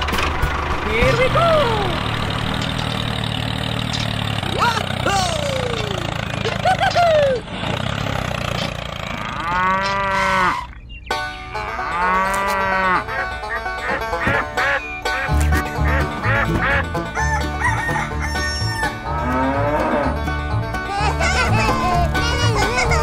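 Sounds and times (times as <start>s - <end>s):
farm animal calls: 9.0s - 20.3s
bass line: 10.2s - 23.0s
upbeat plucked-string music: 11.1s - 23.0s.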